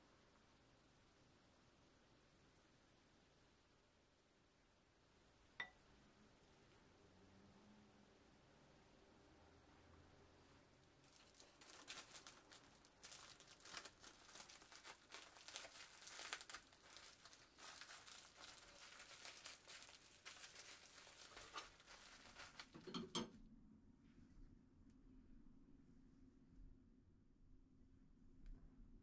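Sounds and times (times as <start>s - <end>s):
plastic cling film crinkling: 11.0s - 22.9s.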